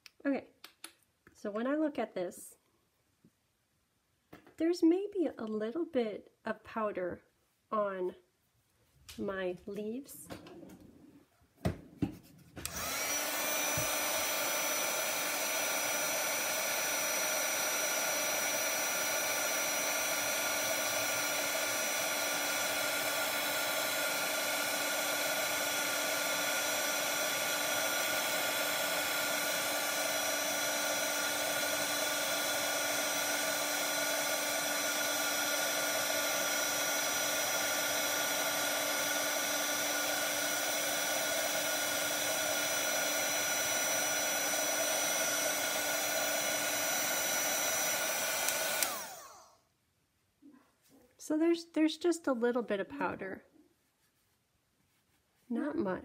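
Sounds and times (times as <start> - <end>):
heat tool fan whir: 12.6 - 49.5
heat tool switch: 46.9 - 49.5.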